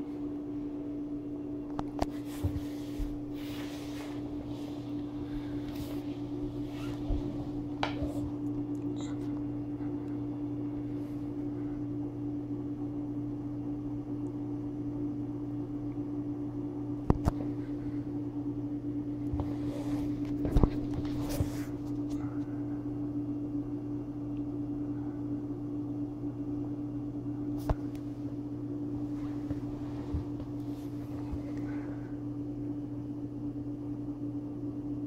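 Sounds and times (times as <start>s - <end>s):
steady low hum: 0.0s - 35.0s
blanket rustling: 2.1s - 7.8s.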